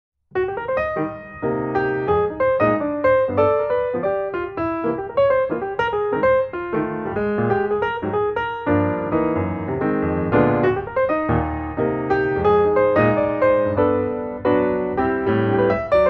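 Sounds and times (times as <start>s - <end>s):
piano music: 0.3s - 16.0s.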